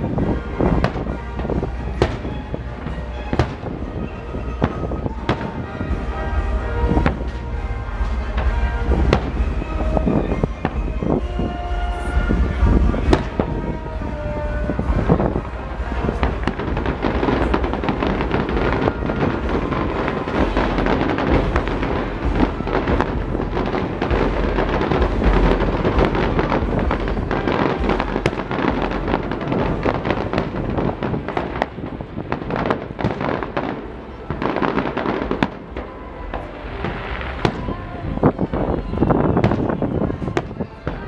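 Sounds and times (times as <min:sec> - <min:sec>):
fireworks bangs: 0:00.0 - 0:41.0
low rumble: 0:00.0 - 0:41.0.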